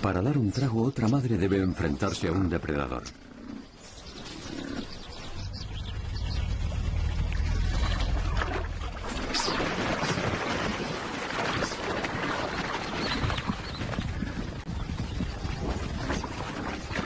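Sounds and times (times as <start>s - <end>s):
low rumble: 4.8s - 9.8s
buffalo splashing through water: 5.4s - 17.0s.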